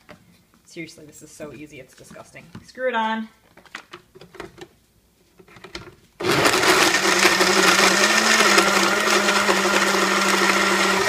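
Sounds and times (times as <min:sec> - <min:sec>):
blender motor running: 0:06.2 - 0:11.0.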